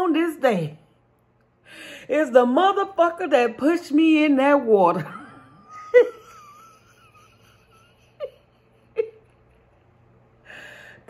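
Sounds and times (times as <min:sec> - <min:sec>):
woman wheezing laughter: 0:05.2 - 0:09.8.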